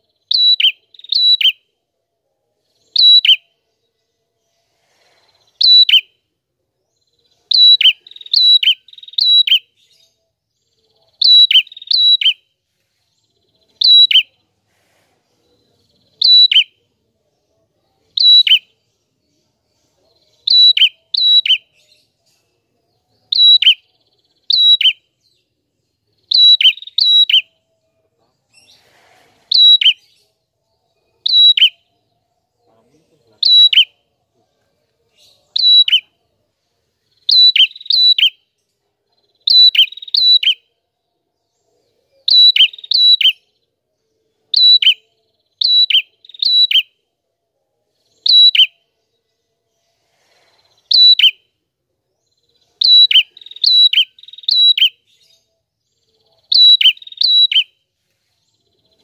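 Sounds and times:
songbird singing: 0:00.0 - 0:59.0.

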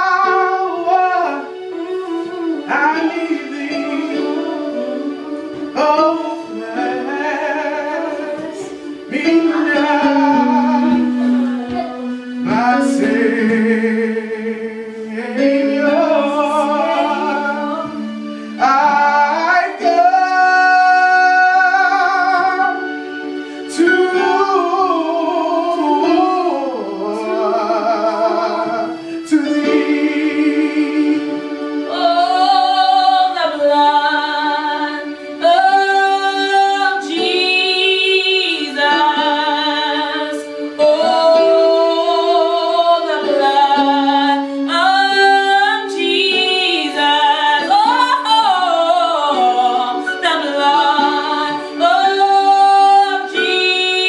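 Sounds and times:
gospel worship singing: 0:00.0 - 0:54.0.

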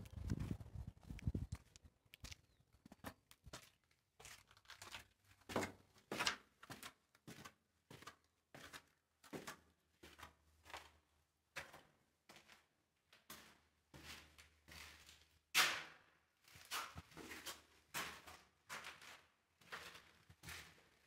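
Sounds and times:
footsteps on gritty concrete: 0:00.0 - 0:09.5.

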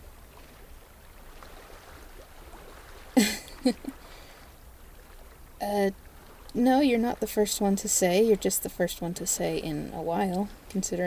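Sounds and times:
water trickling: 0:00.0 - 0:11.0.

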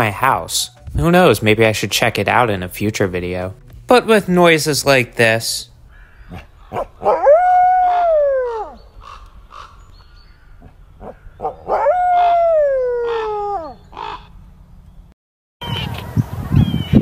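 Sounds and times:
wolf howling: 0:06.3 - 0:08.9, 0:10.6 - 0:14.2.

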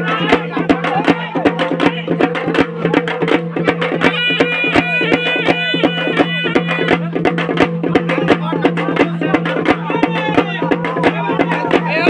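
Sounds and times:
fast drumbeats: 0:00.0 - 0:12.0
folk dance music: 0:03.6 - 0:12.0.

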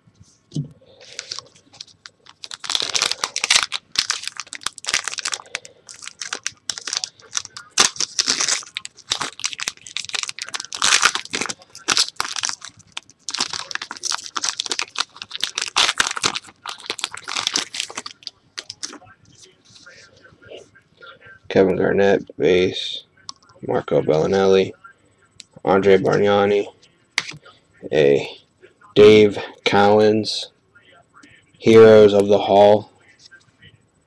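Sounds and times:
foil wrapper crinkling and tearing: 0:01.0 - 0:19.0.

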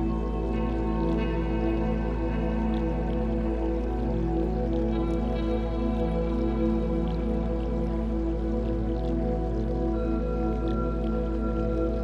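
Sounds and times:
ambient music with held chords: 0:00.0 - 0:12.0
deep steady drone: 0:00.0 - 0:12.0.

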